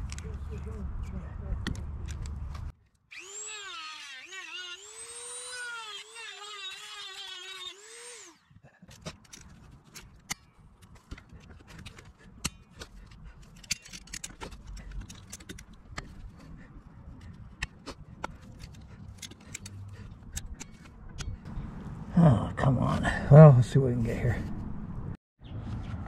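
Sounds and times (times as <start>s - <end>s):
metal hand tools clicking: 9.0s - 16.3s, 17.6s - 21.4s.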